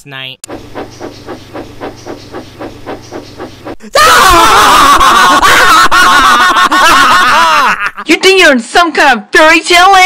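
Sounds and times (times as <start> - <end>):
high wavering voices: 0.5 - 4.1.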